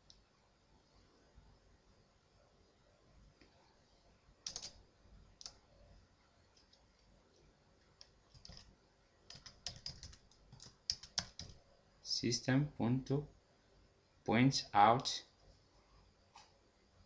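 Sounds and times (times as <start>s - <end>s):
keyboard keystrokes: 4.5s - 4.8s, 8.0s - 8.7s, 9.3s - 11.6s.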